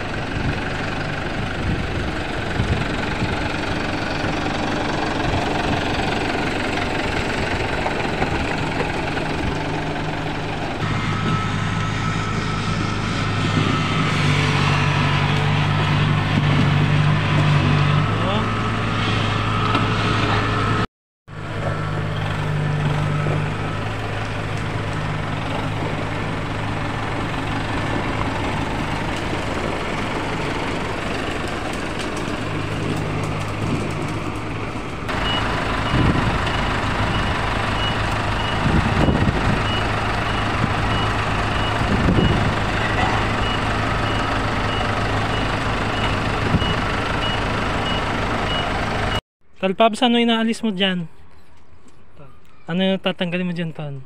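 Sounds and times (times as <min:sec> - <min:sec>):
tractor engine idling: 0:00.0 - 0:14.1, 0:17.9 - 0:49.2
combine harvester diesel engine: 0:00.0 - 0:49.2
reversing alarm beeping: 0:10.8 - 0:15.0, 0:18.3 - 0:20.8, 0:35.1 - 0:49.2.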